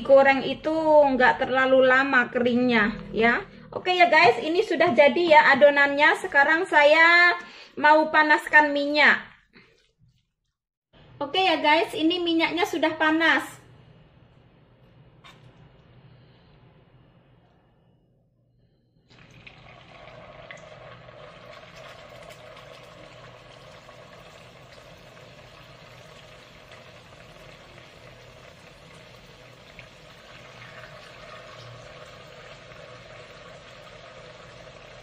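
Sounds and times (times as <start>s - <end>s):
batter sizzling in hot oil: 19.5s - 35.0s.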